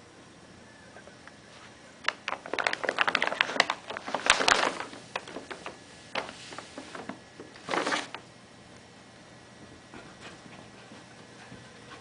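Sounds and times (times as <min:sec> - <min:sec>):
paper bag crinkling and rustling: 0:02.1 - 0:08.2.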